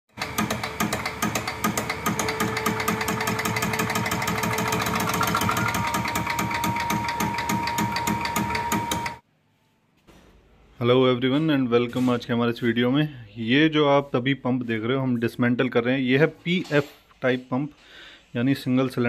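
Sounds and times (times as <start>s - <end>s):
fuel pump test bench ticking: 0.2s - 9.1s
steady machine whine: 0.2s - 9.2s.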